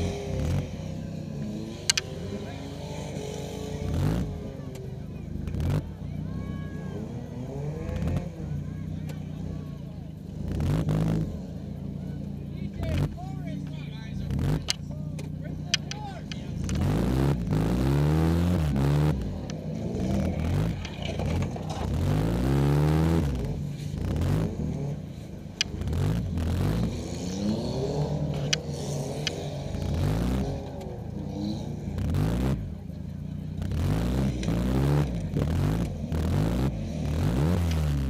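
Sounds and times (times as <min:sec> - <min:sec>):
car engine revving: 0:00.0 - 0:38.0.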